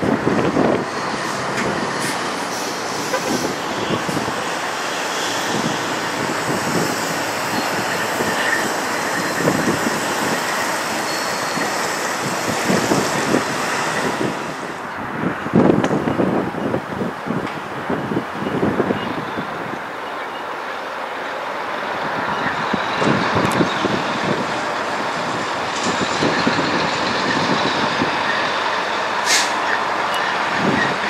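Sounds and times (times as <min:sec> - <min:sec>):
wind buffeting microphone: 0:00.0 - 0:19.9, 0:21.8 - 0:29.2, 0:30.2 - 0:31.0
diesel truck engine: 0:00.0 - 0:31.0.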